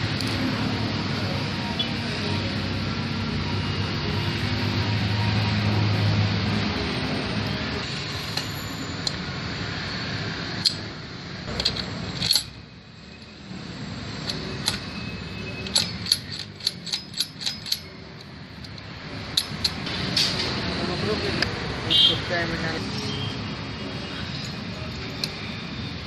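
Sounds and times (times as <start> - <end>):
metal gears clicking: 11.5 - 13.3, 14.1 - 20.6.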